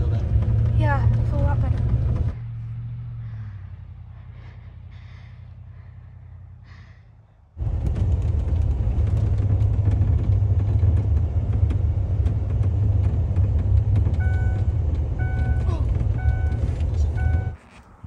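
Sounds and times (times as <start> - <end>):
truck cab rumble: 0.0 - 18.0.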